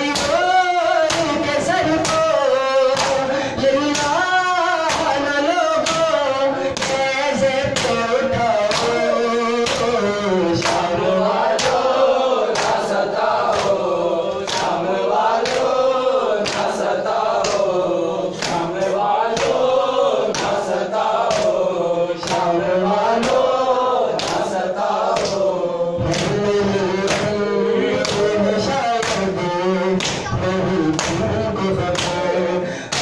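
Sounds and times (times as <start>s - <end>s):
men chanting in chorus: 0.0s - 33.0s
rhythmic chest-beating slaps: 0.0s - 33.0s.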